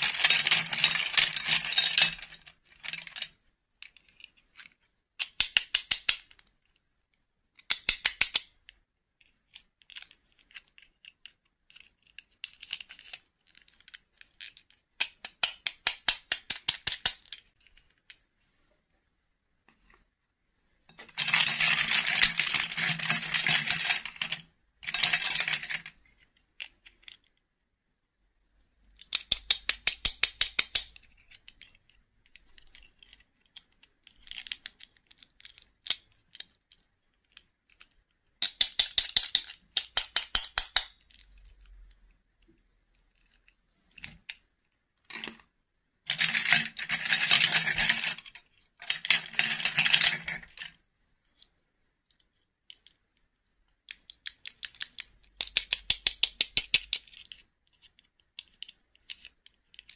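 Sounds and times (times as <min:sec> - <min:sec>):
plastic dolls rattling: 0:00.0 - 0:06.6, 0:20.9 - 0:27.3, 0:45.0 - 0:50.8.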